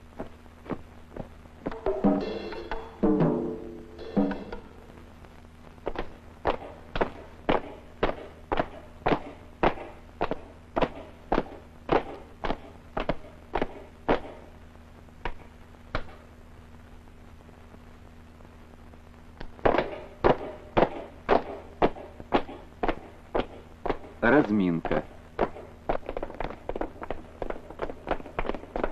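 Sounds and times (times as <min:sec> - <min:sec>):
boots stamping while marching: 0:00.1 - 0:02.2, 0:05.8 - 0:14.4, 0:19.4 - 0:24.2, 0:24.8 - 0:28.9.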